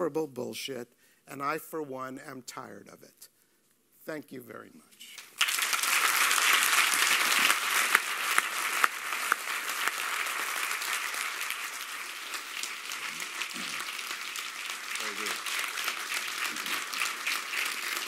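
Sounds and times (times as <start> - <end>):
audience applauding: 5.2 - 18.0.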